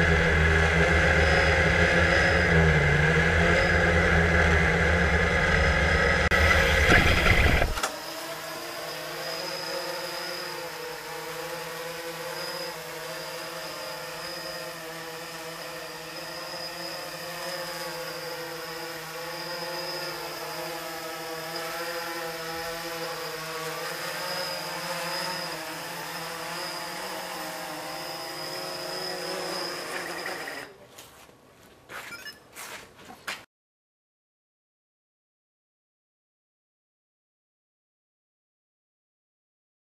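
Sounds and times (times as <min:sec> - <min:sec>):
drone propellers buzzing: 0:00.0 - 0:30.7.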